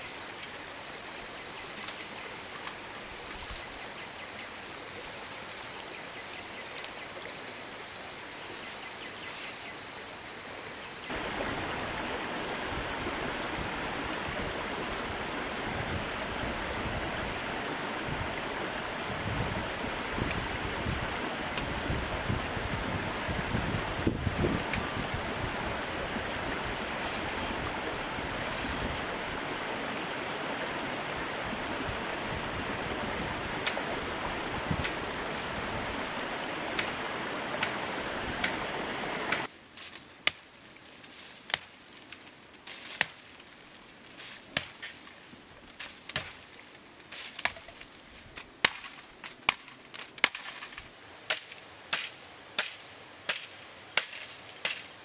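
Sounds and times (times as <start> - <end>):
flowing water rushing: 0.0 - 3.8, 10.0 - 39.5.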